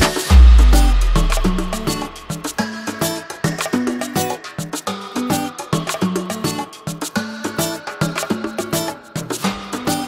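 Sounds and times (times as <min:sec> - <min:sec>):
upbeat dance music: 0:00.0 - 0:04.8.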